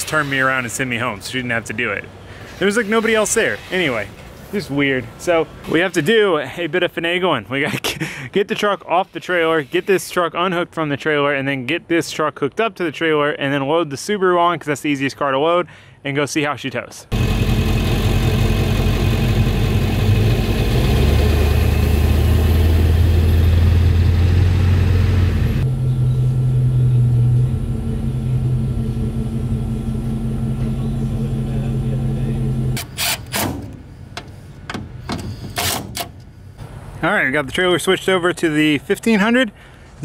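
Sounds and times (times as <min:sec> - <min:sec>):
pickup truck engine running: 0:17.1 - 0:32.8.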